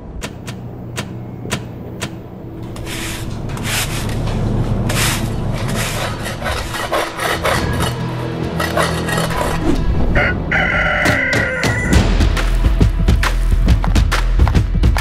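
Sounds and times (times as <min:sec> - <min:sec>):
ventilation fans humming: 0:00.0 - 0:07.5
sharp clicks: 0:00.2 - 0:02.2
broom and shovel scraping concrete: 0:02.7 - 0:09.7.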